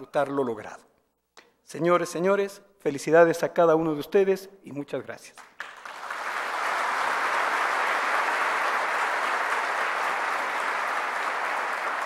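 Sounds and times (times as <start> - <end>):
large audience applauding: 5.4 - 12.0.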